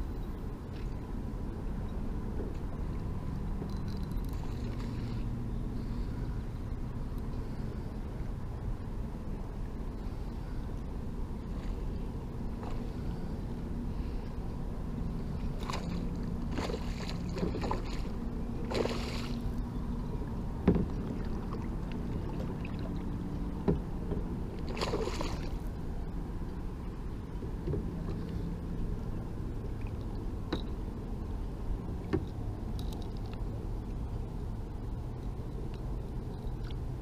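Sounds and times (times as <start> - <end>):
wind and water noise: 0.0 - 37.0
fish splashing at the surface: 18.7 - 19.4, 24.7 - 25.6.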